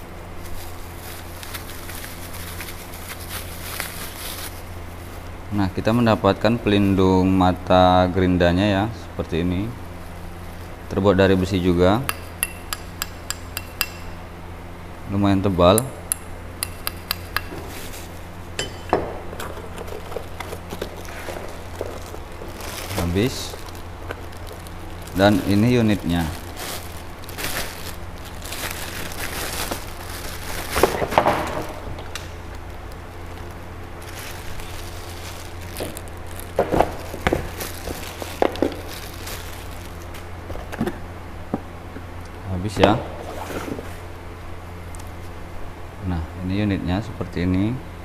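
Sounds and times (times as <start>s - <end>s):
steady low hum: 0.0s - 48.0s
plastic bag crinkling: 0.4s - 5.0s, 19.4s - 40.7s.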